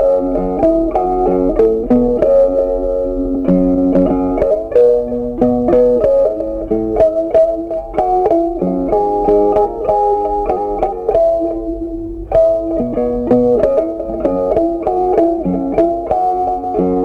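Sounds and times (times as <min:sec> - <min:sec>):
plucked string melody: 0:00.0 - 0:17.0.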